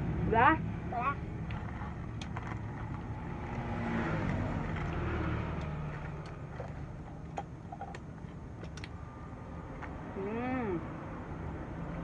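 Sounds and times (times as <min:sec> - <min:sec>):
vehicle engine rumbling past: 0:00.0 - 0:07.1.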